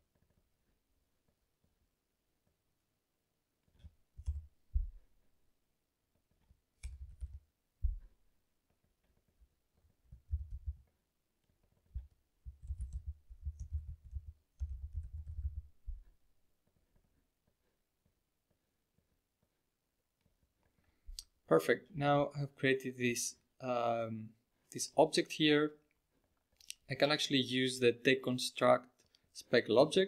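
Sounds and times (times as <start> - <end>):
computer keyboard typing: 4.2 - 4.5, 6.8 - 7.5, 10.1 - 10.9, 11.9 - 16.0.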